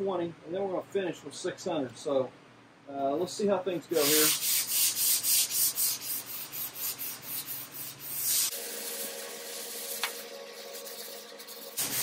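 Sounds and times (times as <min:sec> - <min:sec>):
hand sanding scratchy strokes: 0:03.9 - 0:12.0.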